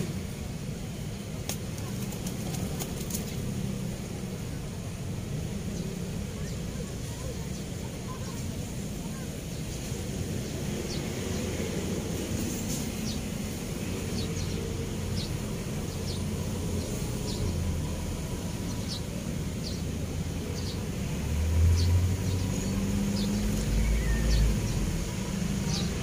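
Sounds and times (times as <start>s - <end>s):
traffic rumble on bridge: 0.0s - 26.0s
vehicle passing: 19.7s - 26.0s
bird chirping: 21.7s - 25.0s.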